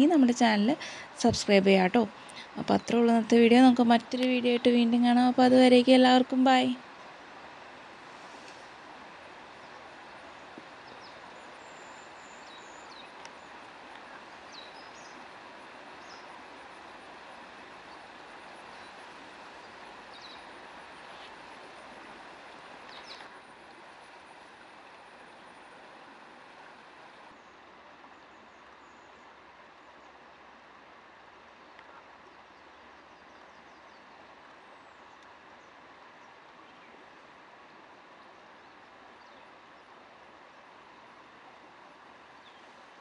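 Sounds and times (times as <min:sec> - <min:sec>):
outdoor background rush: 0:00.0 - 0:43.0
high insect whine: 0:14.5 - 0:27.0.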